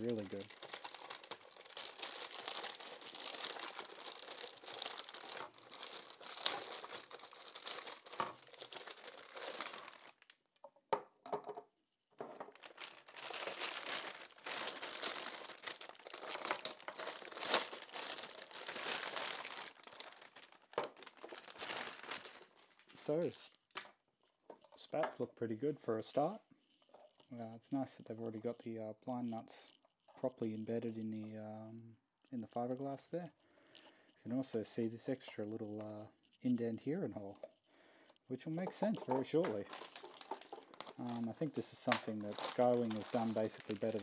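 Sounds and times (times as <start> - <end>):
plastic bag crinkling and tearing: 0.0 - 10.4, 12.4 - 23.5, 38.5 - 44.0.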